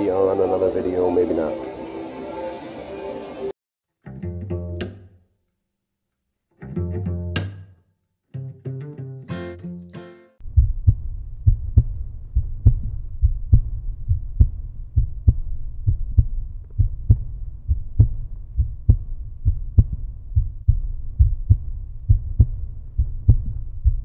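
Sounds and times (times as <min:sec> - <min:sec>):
deep low music beat: 0:10.4 - 0:24.0.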